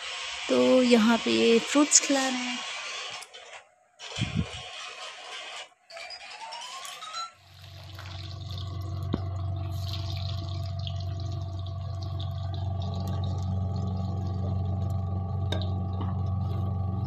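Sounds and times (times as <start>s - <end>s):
hot oil bubbling and crackling: 0.0s - 1.4s, 7.4s - 17.0s
steady low hum: 7.6s - 17.0s.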